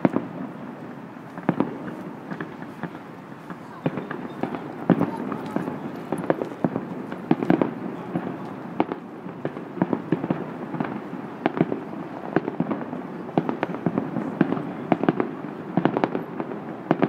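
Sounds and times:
fireworks bursting: 0.0 - 17.0.

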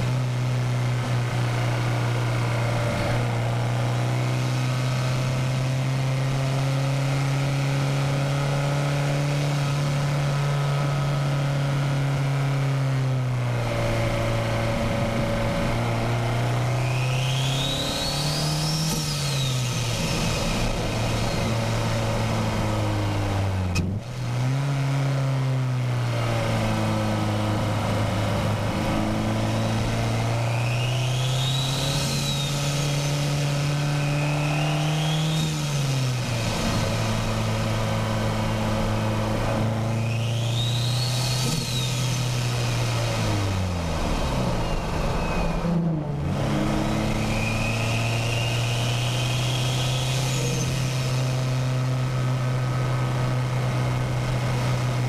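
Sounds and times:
car engine revving: 0.0 - 55.0
turbo whistle: 30.4 - 33.2, 39.9 - 42.3, 44.5 - 45.7, 47.0 - 51.0.

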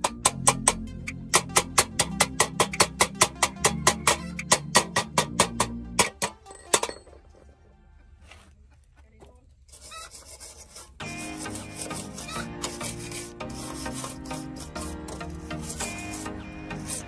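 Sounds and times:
background music with a beat: 0.0 - 6.9, 11.0 - 17.0
hand file rasping: 9.7 - 17.0.

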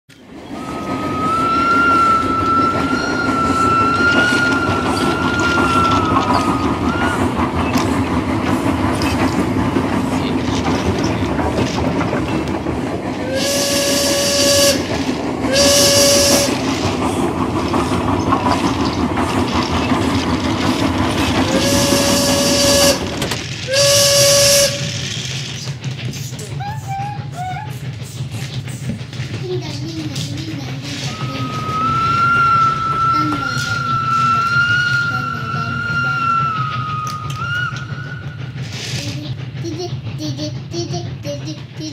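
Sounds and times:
steam train rumbling: 0.1 - 41.9
steam hissing: 0.4 - 41.9
steam train whistle: 0.5 - 7.4, 13.2 - 16.9, 21.4 - 25.0, 31.1 - 38.6.

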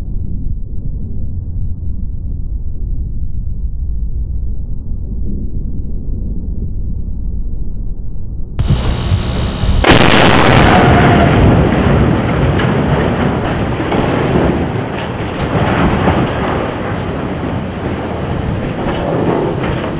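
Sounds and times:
long rolling rumble: 0.0 - 19.9
loud explosion: 8.6 - 19.9.

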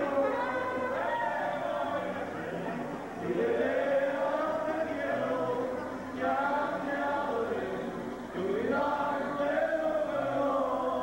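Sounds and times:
guitar accompaniment: 0.0 - 11.0.

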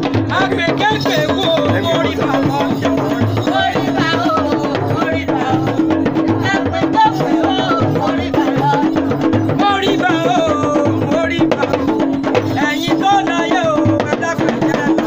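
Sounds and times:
drum and percussion music: 0.0 - 15.0.

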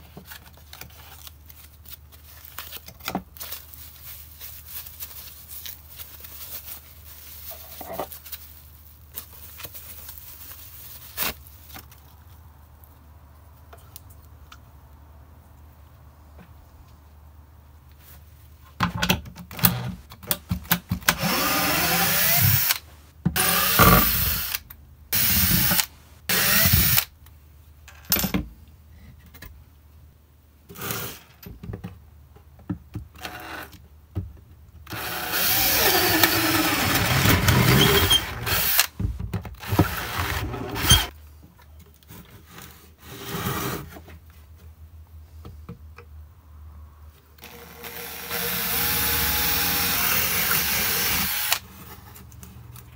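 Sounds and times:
cordless drill boring into wood: 21.2 - 22.8, 23.4 - 24.6, 25.2 - 27.0, 34.9 - 38.9, 39.6 - 41.1, 47.4 - 51.6.

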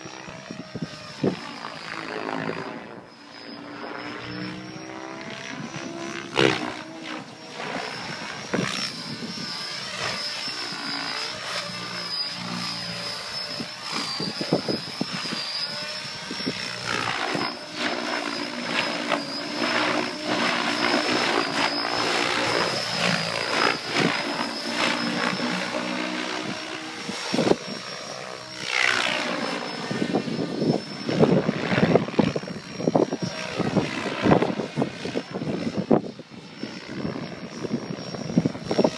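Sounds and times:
helicopter rotor blades whooshing: 0.0 - 38.9
wind buffeting microphone: 20.2 - 28.0, 29.8 - 38.9.

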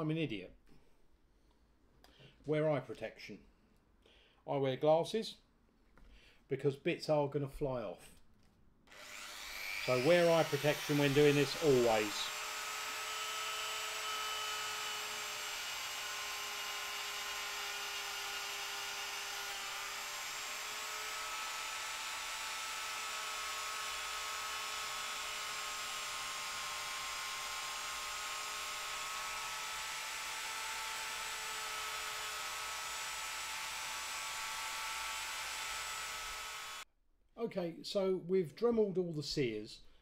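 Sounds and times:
rotary tool whine: 8.9 - 36.8.

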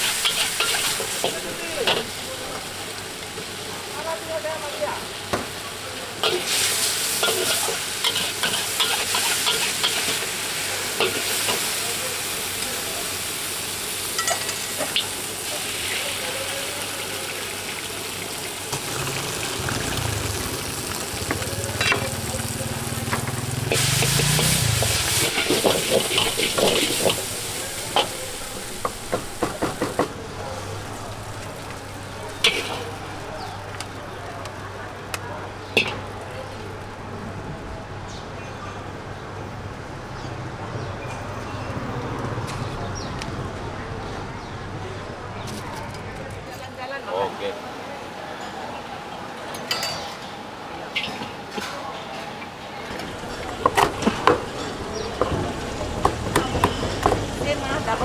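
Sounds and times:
metal spatula scraping a wok: 0.0 - 2.1, 23.7 - 28.4
noodles sizzling in a wok: 0.0 - 36.9.

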